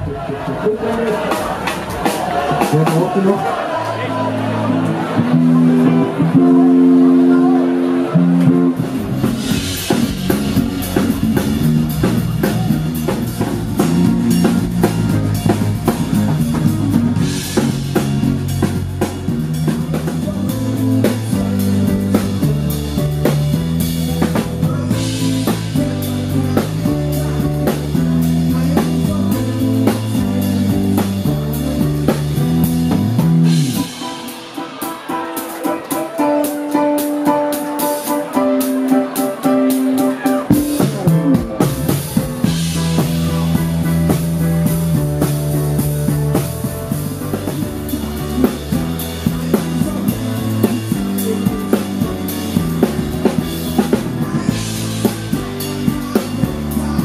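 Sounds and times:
band music: 0.0s - 57.0s.

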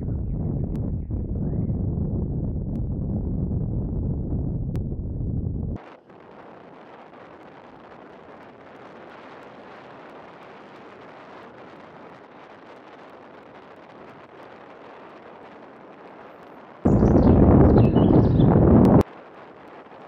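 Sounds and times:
bicycle rolling on asphalt hiss: 5.9s - 16.8s.

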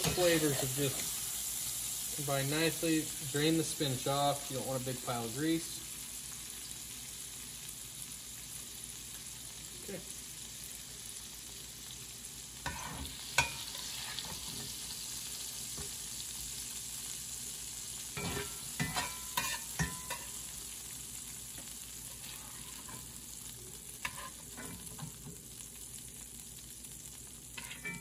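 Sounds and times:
oil sizzling in frying pan: 0.0s - 28.0s
utensil clinking on cookware: 18.2s - 20.3s, 27.6s - 28.0s.

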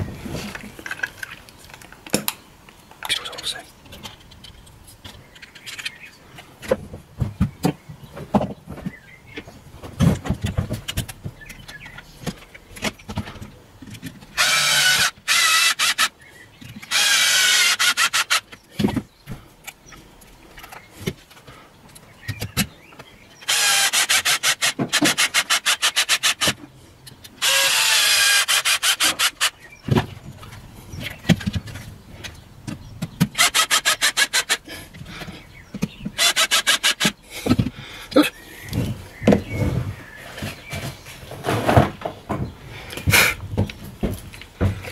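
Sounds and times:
cordless screwdriver motor: 14.4s - 16.1s, 16.9s - 18.4s, 23.4s - 26.5s, 27.4s - 29.5s, 33.4s - 34.6s, 36.2s - 37.1s
tools and plastic clicking: 20.6s - 39.4s.

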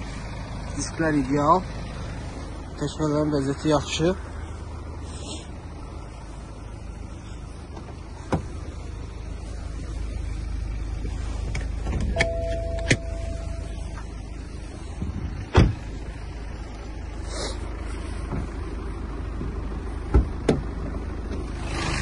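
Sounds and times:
low steady rumble: 0.0s - 22.0s
car door clicks: 7.7s - 8.6s, 11.5s - 13.2s, 15.5s - 15.8s
car door shutting: 7.7s - 8.7s, 11.5s - 14.0s, 15.0s - 15.9s, 18.3s - 18.6s, 19.4s - 21.4s
short steady tone: 12.1s - 14.0s.

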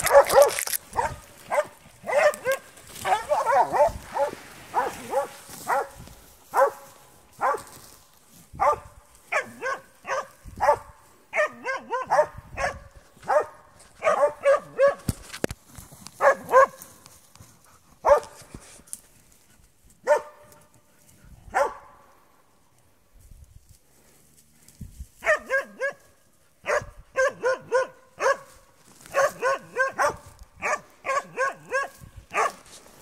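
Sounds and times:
dog barking: 0.0s - 6.8s, 7.4s - 7.7s, 8.6s - 15.1s, 16.2s - 16.8s, 18.0s - 18.4s, 20.0s - 20.5s, 21.5s - 22.0s, 25.2s - 26.0s, 26.6s - 28.5s, 29.1s - 32.6s.

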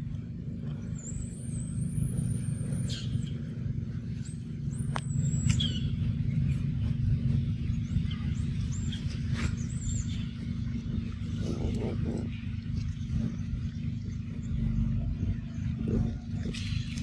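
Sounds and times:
low rumble: 0.0s - 17.0s
high-pitched whistled calls: 5.0s - 6.0s.

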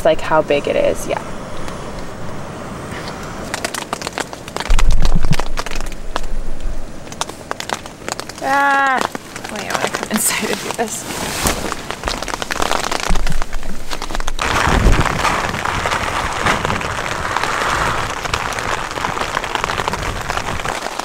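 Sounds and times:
pouring rain pattering: 0.6s - 21.0s
low thumps: 3.5s - 8.4s.

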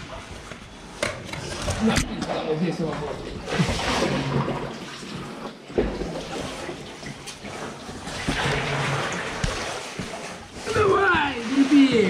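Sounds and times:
paddle splashing through water: 3.4s - 12.0s.

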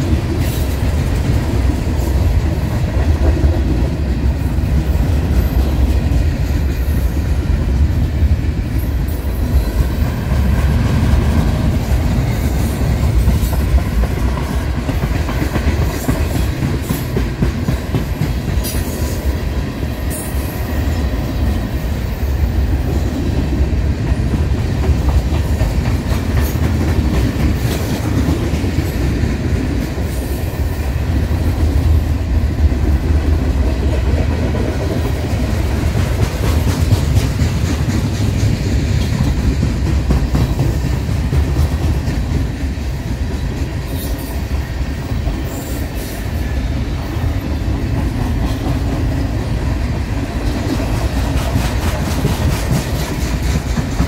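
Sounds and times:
train cars rumbling past: 0.0s - 54.0s
wheels clicking on rails: 32.6s - 46.1s, 47.0s - 54.0s.

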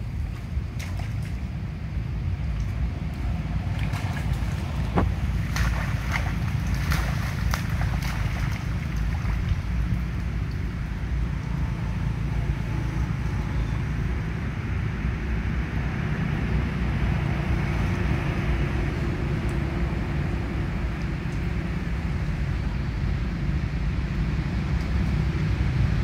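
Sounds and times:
light splashes in muddy water: 0.0s - 11.5s
wind buffeting microphone: 0.0s - 14.8s.

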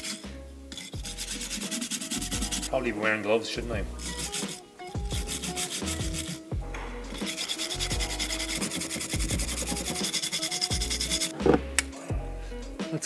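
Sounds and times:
abrasive scrubbing of metal: 0.0s - 2.8s, 4.0s - 6.4s, 7.1s - 11.6s
background music with deep bass: 0.0s - 13.0s.

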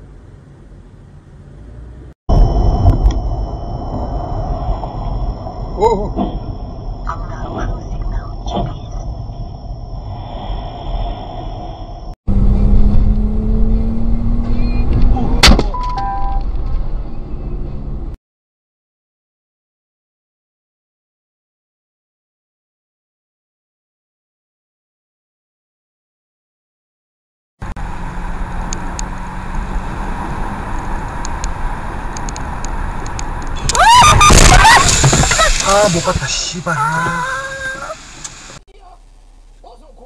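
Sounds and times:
road and engine rumble: 0.0s - 18.2s, 27.6s - 40.0s
steady low tone: 2.3s - 15.1s
short electronic beeps: 14.5s - 15.0s, 15.7s - 16.4s.

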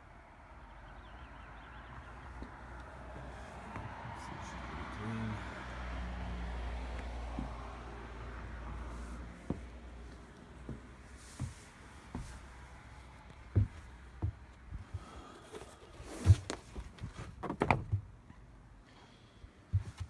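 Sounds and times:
footsteps on boat deck: 7.3s - 7.8s, 9.4s - 15.2s, 19.7s - 20.0s.

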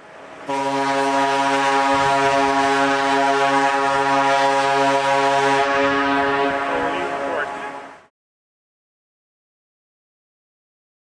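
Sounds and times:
ship's horn long blast: 0.4s - 8.1s.

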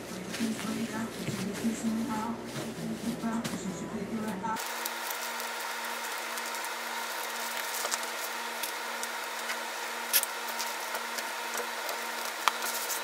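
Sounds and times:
steady hum: 0.0s - 13.0s
paper crinkling and rustling: 4.7s - 13.0s.

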